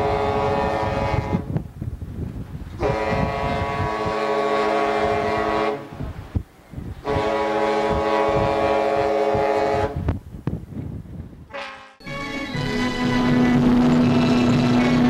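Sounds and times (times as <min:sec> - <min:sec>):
ship horn blasts: 0:00.0 - 0:01.6, 0:02.8 - 0:06.1, 0:07.0 - 0:10.1, 0:11.5 - 0:15.0.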